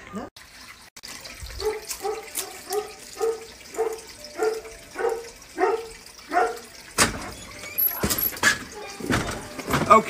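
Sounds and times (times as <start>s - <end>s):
dog barking: 1.6s - 6.7s.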